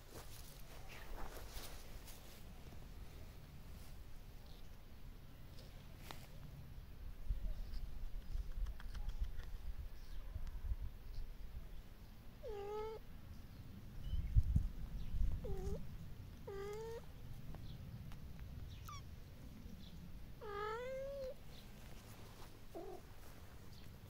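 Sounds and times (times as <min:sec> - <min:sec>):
cat meowing: 0:12.4 - 0:13.0, 0:15.4 - 0:15.8, 0:16.4 - 0:17.0, 0:20.4 - 0:21.4.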